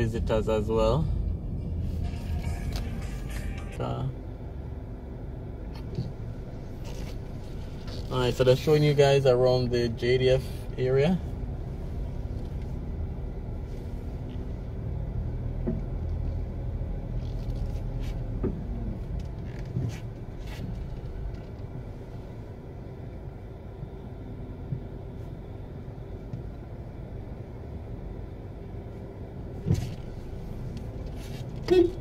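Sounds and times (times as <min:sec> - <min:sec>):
traffic rumble: 0:00.0 - 0:32.0.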